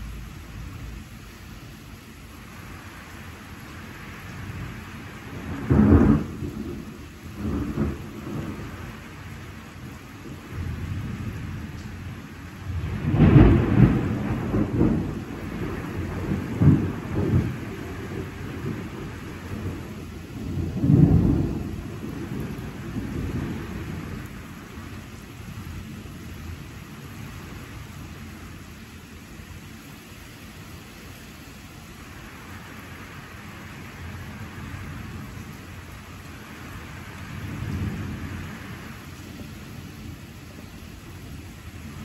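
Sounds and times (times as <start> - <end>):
steady rain: 0.0 - 42.0
thunder rumbling: 4.3 - 25.0, 36.6 - 39.1.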